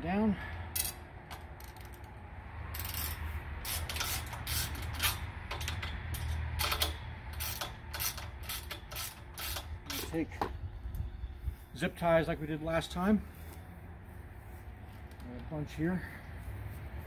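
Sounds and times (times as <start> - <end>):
ratchet wrench clicking: 0.7 - 10.2.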